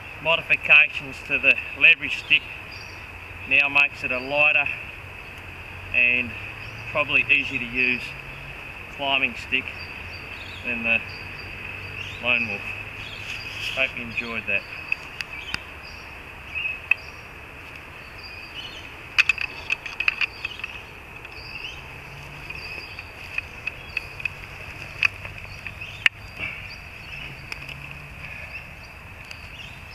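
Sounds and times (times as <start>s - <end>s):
high insect chorus: 0.0s - 29.9s
climbing sticks knocking: 19.1s - 21.4s, 22.1s - 26.6s.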